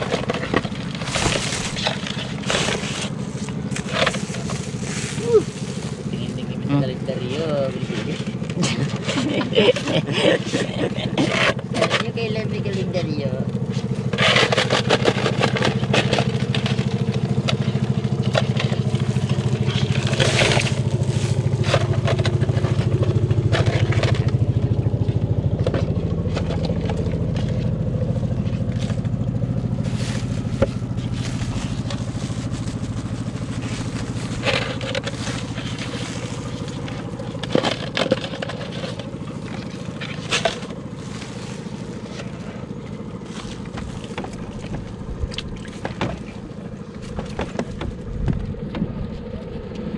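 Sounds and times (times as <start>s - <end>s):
netting rustling: 0.0s - 6.2s, 18.9s - 22.0s, 29.8s - 45.1s
plastic crinkling: 0.0s - 6.5s, 18.5s - 22.9s, 28.8s - 46.0s
small engine running: 0.0s - 49.9s.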